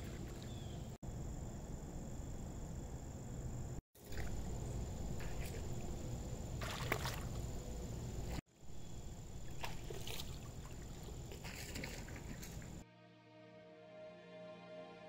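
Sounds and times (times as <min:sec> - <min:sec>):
low outdoor rumble: 0:00.0 - 0:12.8
lure splashing on water: 0:04.0 - 0:08.4, 0:09.2 - 0:12.8.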